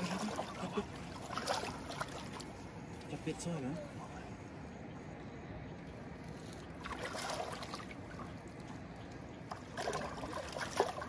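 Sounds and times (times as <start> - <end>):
fish splashing in shallow water: 0.0 - 3.0, 6.5 - 11.0.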